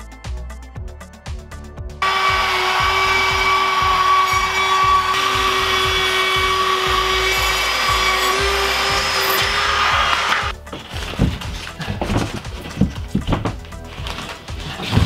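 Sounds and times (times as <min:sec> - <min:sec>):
music beat: 0:00.0 - 0:15.0
cordless drill whining: 0:02.0 - 0:10.6.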